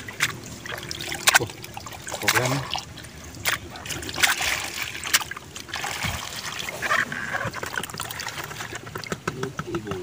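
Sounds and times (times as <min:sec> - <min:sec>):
water splashing and trickling: 0:00.0 - 0:10.0.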